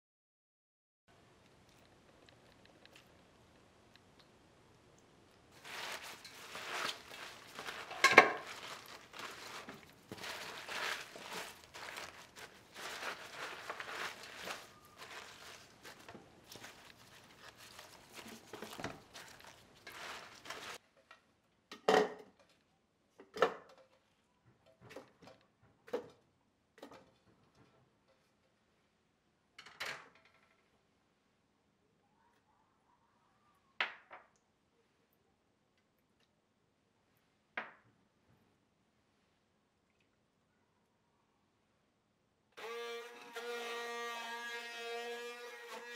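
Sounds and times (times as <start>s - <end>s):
wet rustle of scallions in bowl: 5.6s - 20.8s
pieces dropped into blender jar: 5.7s - 16.9s.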